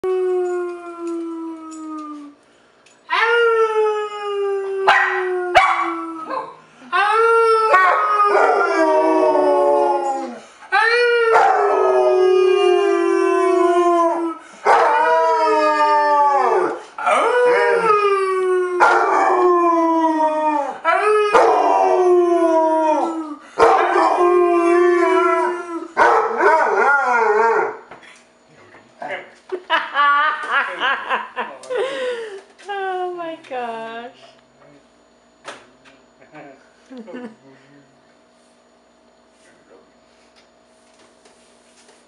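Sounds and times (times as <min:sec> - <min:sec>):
dog howling: 0:00.0 - 0:02.4, 0:03.1 - 0:27.9
man howling: 0:00.0 - 0:02.4, 0:03.1 - 0:27.7.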